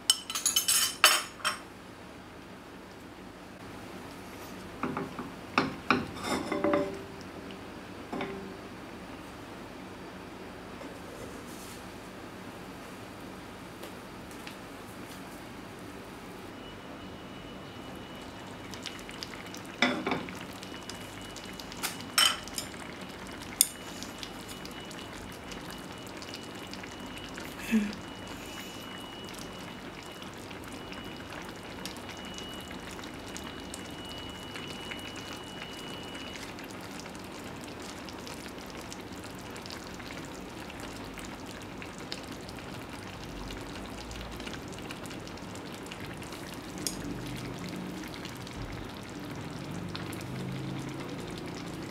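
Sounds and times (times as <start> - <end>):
broth simmering: 16.6 - 51.9.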